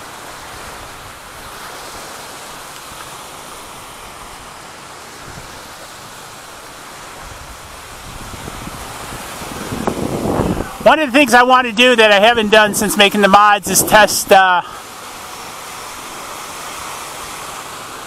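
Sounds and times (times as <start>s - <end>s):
surf on shore: 0.0s - 18.0s
wind on microphone: 7.2s - 14.8s.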